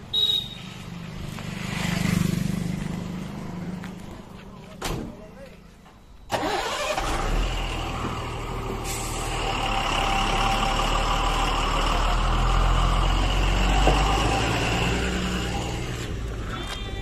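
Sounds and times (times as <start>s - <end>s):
diesel truck driving past: 6.3s - 16.5s.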